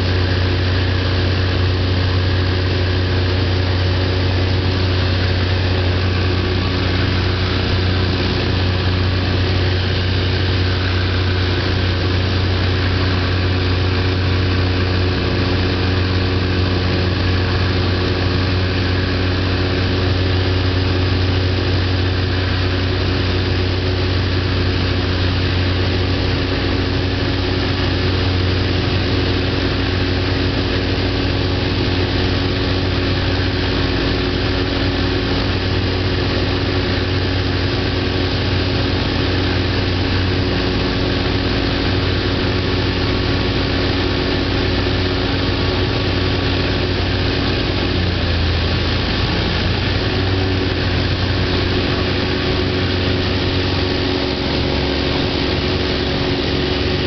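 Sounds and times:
aircraft engines and propellers droning: 0.0s - 57.0s
dense rushing noise: 35.3s - 57.0s.

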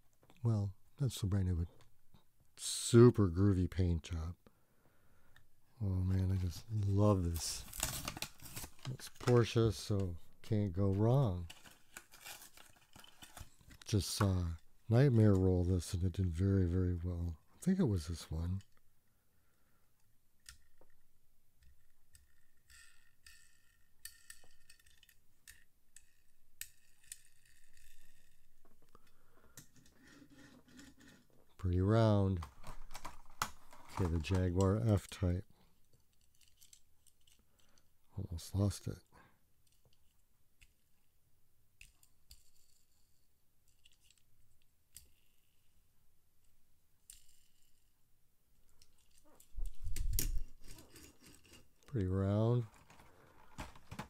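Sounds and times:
toy car wheel clicks: 22.1s - 28.3s.

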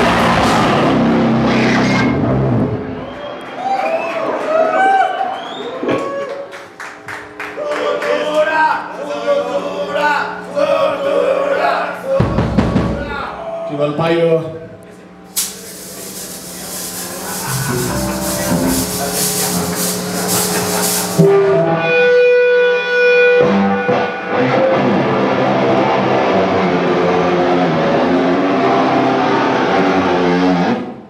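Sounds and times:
live metal band playing: 0.0s - 2.8s, 15.4s - 30.8s.

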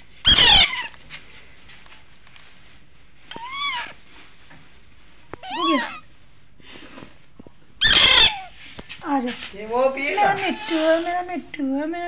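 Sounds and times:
parakeet chick squawking: 0.2s - 0.9s, 7.8s - 8.5s.

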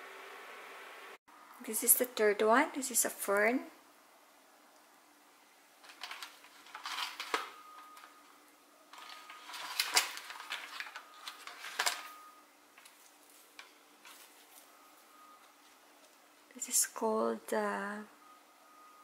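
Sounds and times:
hand rustling fern fronds: 12.9s - 16.2s.

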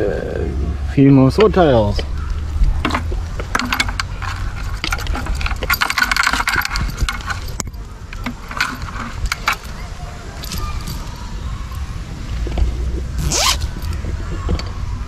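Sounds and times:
wire trap rattling and clicking: 2.6s - 11.9s, 13.2s - 14.0s.

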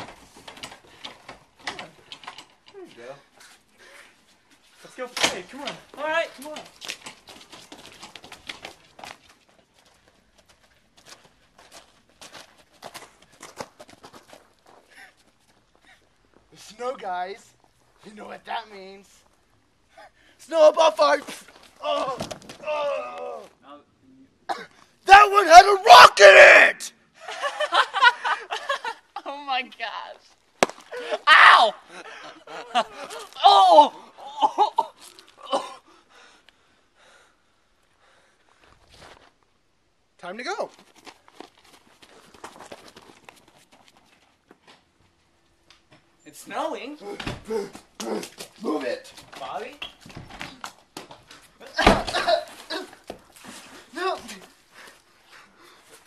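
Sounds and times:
man shouting oh: 21.8s - 23.5s, 25.1s - 26.9s, 31.0s - 31.8s, 33.3s - 34.5s
young men laughing and gasping: 27.1s - 29.2s, 30.8s - 36.4s, 47.0s - 48.6s, 51.6s - 56.0s.

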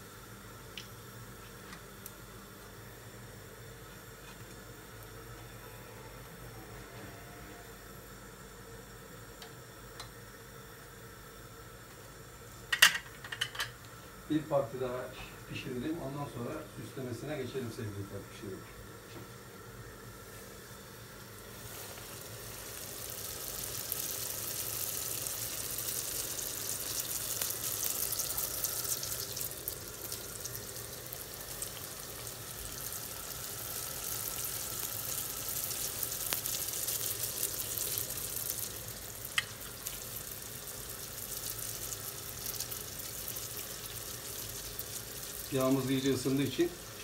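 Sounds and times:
donuts sizzling in oil: 19.3s - 47.0s.

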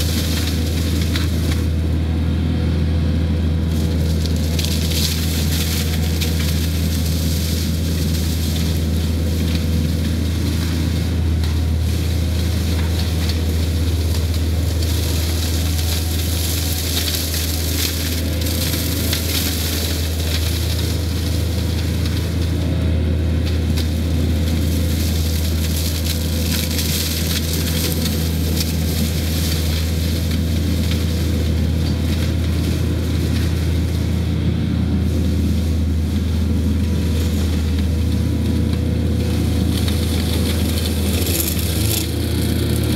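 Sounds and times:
diesel engine running: 0.0s - 42.9s
mulcher shredding brush: 0.0s - 42.9s.

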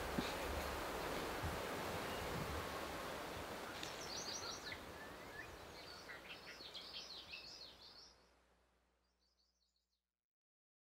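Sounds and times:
soft outdoor hiss: 0.0s - 9.9s
faint birds chirping: 1.9s - 10.0s.

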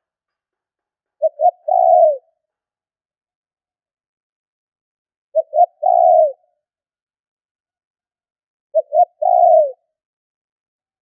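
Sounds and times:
dove cooing: 1.2s - 2.3s, 5.4s - 6.5s, 8.7s - 9.8s.

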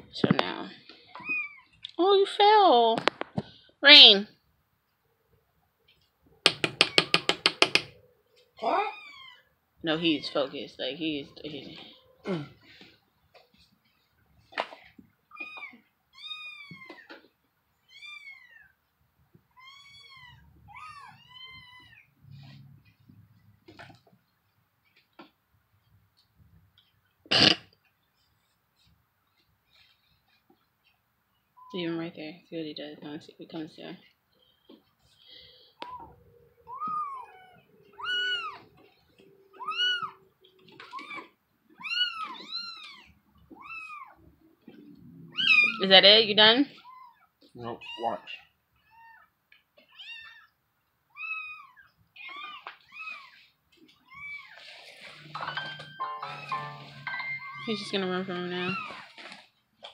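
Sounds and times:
cats meowing: 1.0s - 1.8s, 7.9s - 10.5s, 15.3s - 18.8s, 19.5s - 22.4s, 35.8s - 46.0s, 46.7s - 55.4s, 56.0s - 59.4s
cat meowing: 35.8s - 38.7s, 39.5s - 40.2s, 40.8s - 44.2s, 45.3s - 45.9s, 49.9s - 53.4s.

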